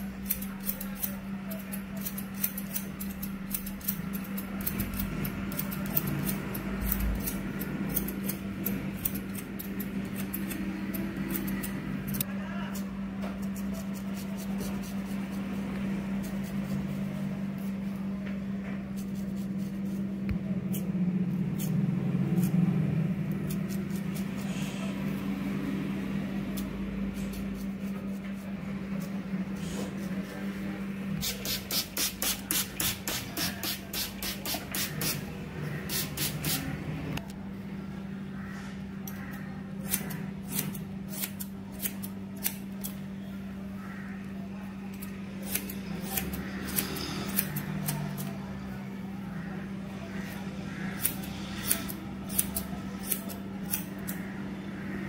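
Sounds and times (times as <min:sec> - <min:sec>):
razor scraping hair: 0:00.1 - 0:12.8, 0:18.9 - 0:20.2, 0:31.2 - 0:35.2, 0:35.8 - 0:36.7, 0:45.0 - 0:48.3, 0:50.9 - 0:54.3
scissors snipping hair: 0:00.2 - 0:12.8, 0:39.0 - 0:43.0, 0:44.9 - 0:48.3, 0:51.0 - 0:54.3.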